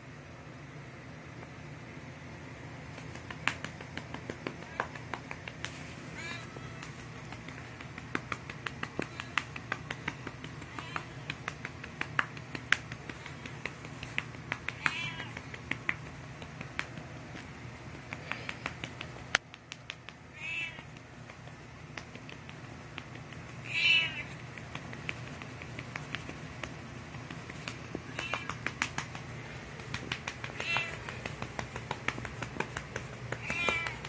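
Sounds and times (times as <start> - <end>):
hand patting cat: 2.8 - 34.0
cat meowing: 6.1 - 6.9, 10.7 - 11.3, 14.7 - 15.4, 20.3 - 20.9, 23.6 - 24.4, 28.0 - 28.6, 30.6 - 31.1, 33.4 - 34.0.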